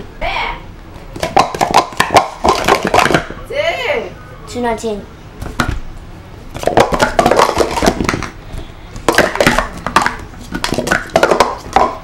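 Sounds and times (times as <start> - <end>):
plastic cups clattering: 1.2 - 3.3, 6.6 - 8.4, 9.0 - 12.0.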